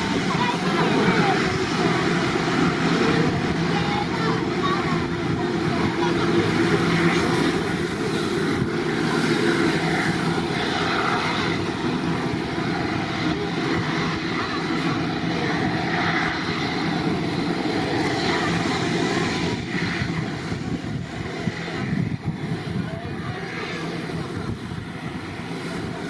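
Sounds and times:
jet engines running at low power: 0.0s - 26.0s.

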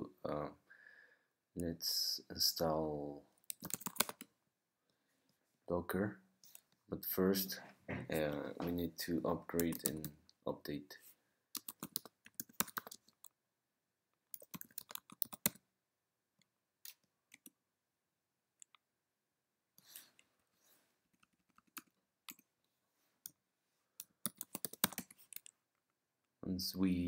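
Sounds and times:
keyboard typing clicks: 3.5s - 4.3s, 11.6s - 13.0s, 14.3s - 15.6s, 24.0s - 25.5s.

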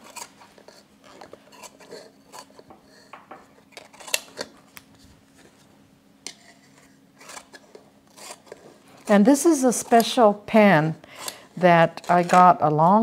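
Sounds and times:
scissors snipping leaves: 9.7s - 10.3s.

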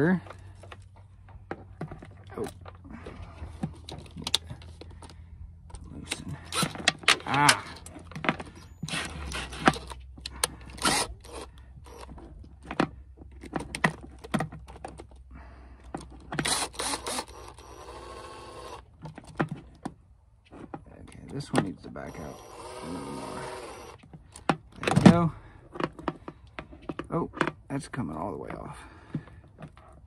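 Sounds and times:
cordless drill turning bolt: 3.8s - 12.3s, 15.9s - 19.3s, 22.0s - 25.0s.

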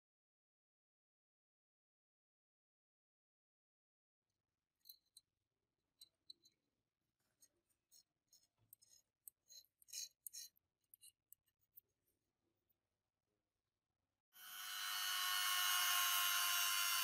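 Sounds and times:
metal scraper scraping gel: 7.9s - 11.5s.

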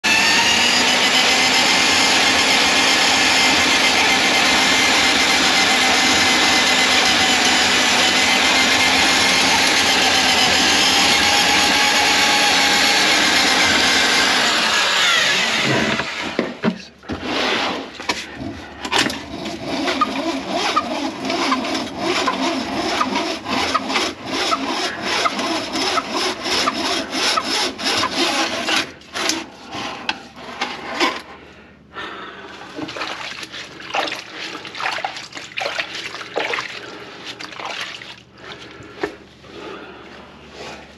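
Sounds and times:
drain auger motor running: 0.0s - 16.4s, 18.8s - 31.3s.

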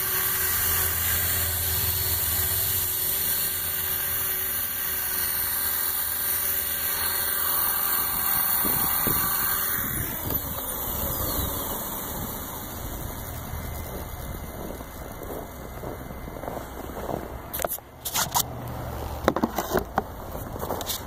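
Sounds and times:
rc helicopter motor and rotor whining: 0.0s - 21.0s
wind rumble on microphone: 8.4s - 17.6s.

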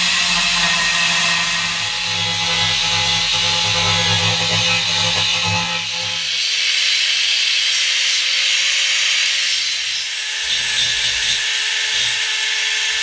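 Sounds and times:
belt file sanding metal: 0.0s - 7.0s, 9.8s - 12.3s
angle grinder grinding metal: 0.0s - 13.0s.

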